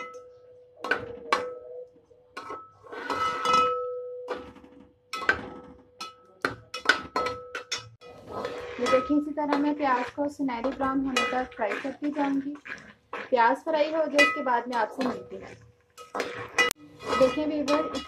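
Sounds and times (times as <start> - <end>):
onions frying: 8.0 - 18.0.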